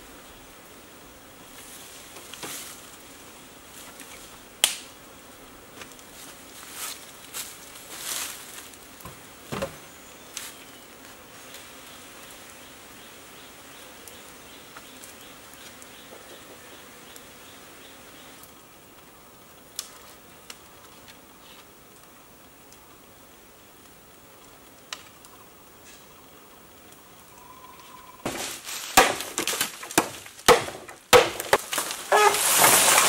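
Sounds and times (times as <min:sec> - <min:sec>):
insects buzzing: 0:00.0 - 0:33.0
bamboo poles knocking and rustling: 0:02.1 - 0:02.8, 0:06.8 - 0:09.9, 0:28.2 - 0:33.0.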